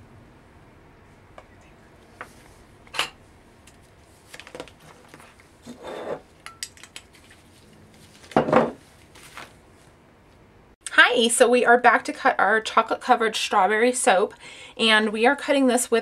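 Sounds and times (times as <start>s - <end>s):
plastic sheet rustling: 7.1s - 9.9s.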